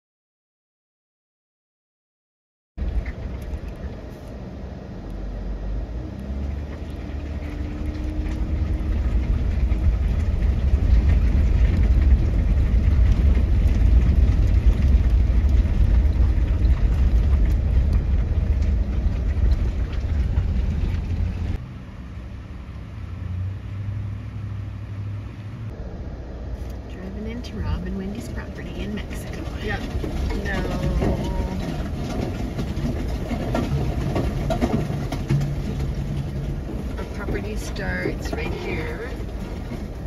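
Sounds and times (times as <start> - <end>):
tyres rumbling on cobblestones: 2.8 - 40.0.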